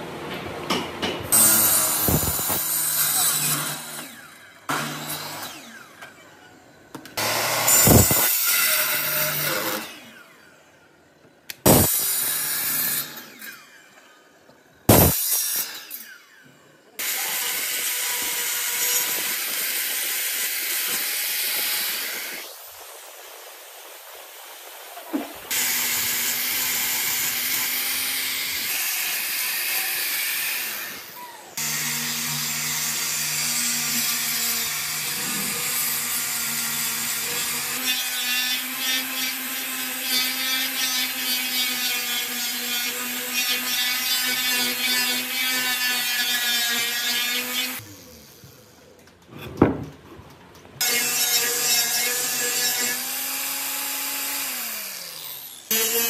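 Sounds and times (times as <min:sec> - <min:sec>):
angle grinder sanding wood: 0:01.3 - 0:05.9, 0:23.8 - 0:48.8, 0:50.8 - 0:56.0
sharp knock: 0:14.9 - 0:15.2.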